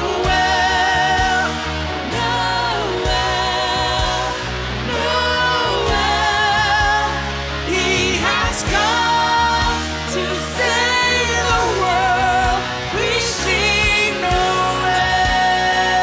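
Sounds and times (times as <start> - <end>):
grand piano: 0.0 - 16.0
woman singing: 0.0 - 16.0
man singing: 6.8 - 16.0.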